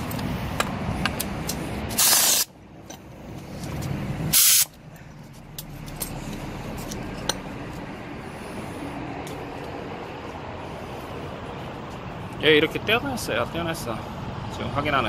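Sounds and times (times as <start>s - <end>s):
steady low rumble: 0.0s - 14.9s
pneumatic wrench hissing bursts: 1.9s - 2.5s, 4.3s - 4.8s.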